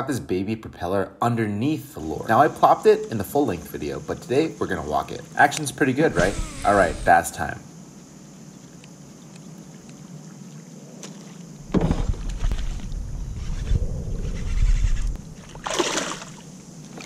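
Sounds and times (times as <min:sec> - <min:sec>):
fish splashing in water: 0:15.4 - 0:17.0.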